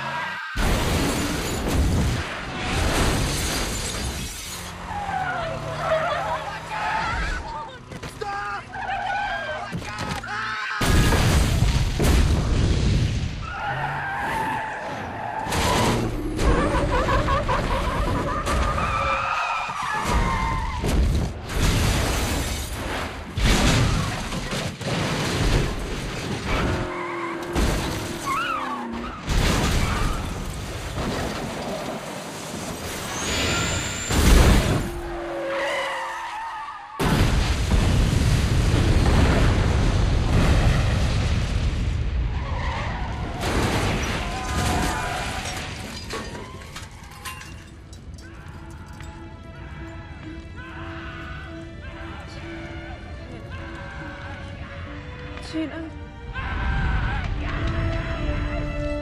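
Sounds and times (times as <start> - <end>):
tyres skidding: 2.2 - 10.6, 25.8 - 37.0
glass shattering: 2.8 - 4.7, 43.4 - 49.1
car crashes and metal impacts: 15.4 - 17.0, 18.2 - 35.2, 43.3 - 48.2
loud explosion: 37.0 - 42.4
background music: 47.6 - 59.0.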